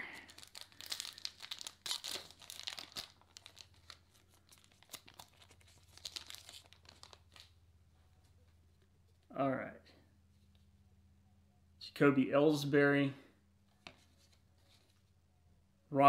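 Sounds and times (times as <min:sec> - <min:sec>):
foil wrapper crinkling: 0:00.0 - 0:07.6.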